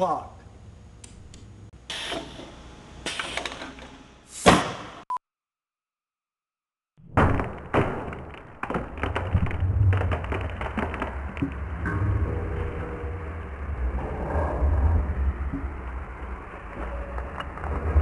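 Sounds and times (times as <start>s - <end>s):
rapid clattering knocks: 7.3s - 11.6s.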